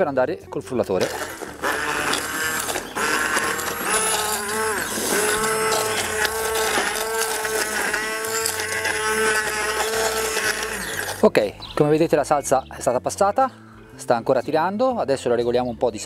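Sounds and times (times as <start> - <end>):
immersion blender motor whining: 1.0 - 11.3.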